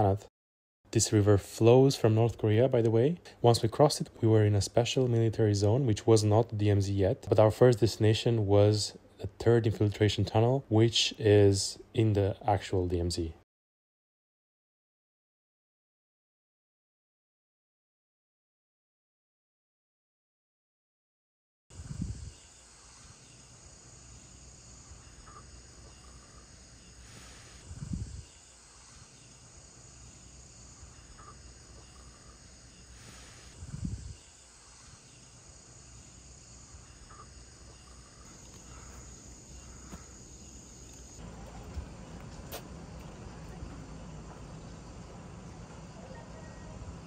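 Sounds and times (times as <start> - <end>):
insects chirring: 21.8 - 47.0
low rumbling noise: 41.2 - 46.0.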